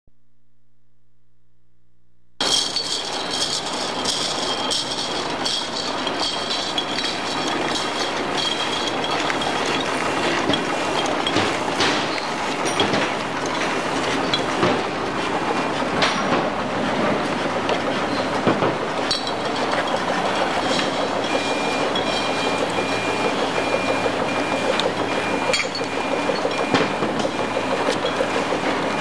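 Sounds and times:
glass bottles clinking: 0:02.4 - 0:14.7, 0:19.0 - 0:23.8, 0:24.6 - 0:28.5.

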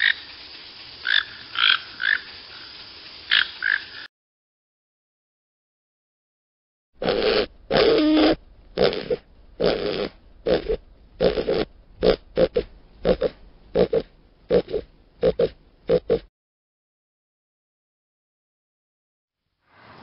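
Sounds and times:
aardvark grunting: 0:07.0 - 0:16.3.

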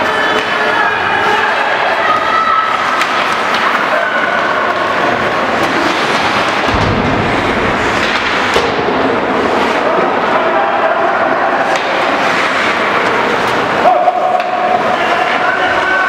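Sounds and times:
hockey sticks and puck clacking: 0:00.0 - 0:10.5, 0:11.5 - 0:16.0
skates on ice: 0:01.5 - 0:10.5, 0:11.1 - 0:16.0
boards hit booming rumble: 0:05.7 - 0:09.6.

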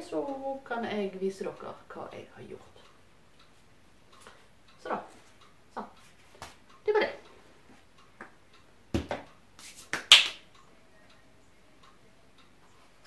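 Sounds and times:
hands clapping and brushing: 0:09.6 - 0:10.4.

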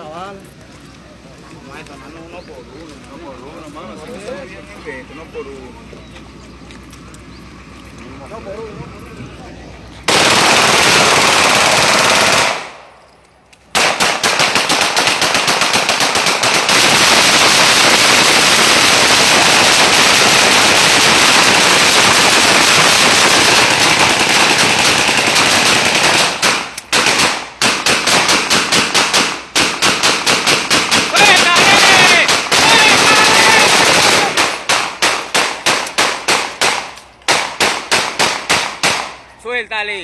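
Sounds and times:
automatic rifle gunfire: 0:10.1 - 0:12.9, 0:13.7 - 0:39.2.

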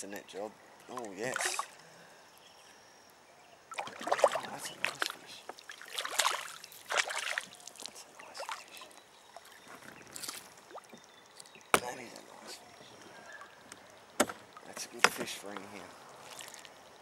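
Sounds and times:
water splashing beside kayak: 0:03.7 - 0:17.0.

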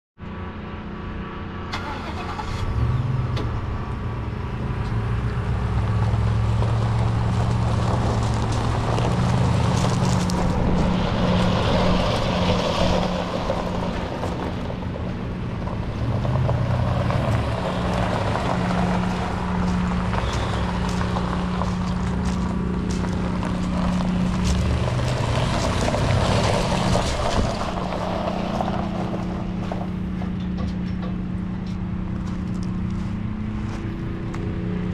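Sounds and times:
footsteps crunching on gravel: 0:04.6 - 0:34.6
pickup engine idling: 0:13.5 - 0:33.9.

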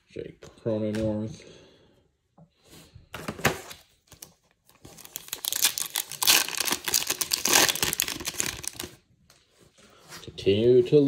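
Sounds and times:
foil wrapper tearing and crinkling: 0:04.9 - 0:09.0.

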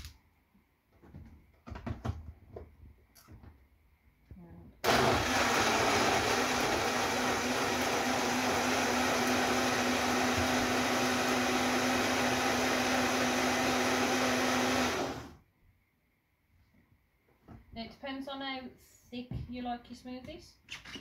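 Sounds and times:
blender whirring: 0:04.8 - 0:15.4.

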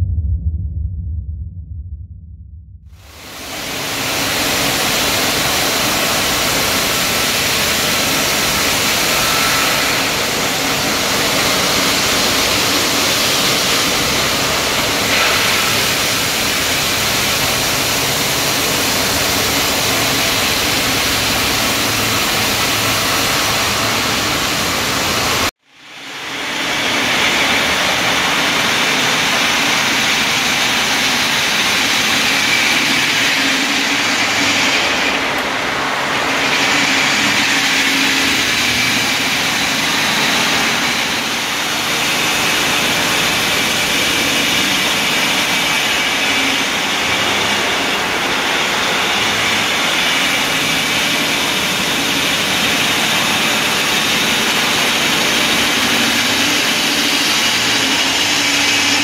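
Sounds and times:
low motor hum: 0:00.0 - 0:25.5
stone saw grinding: 0:03.7 - 0:25.5, 0:36.1 - 0:59.0.

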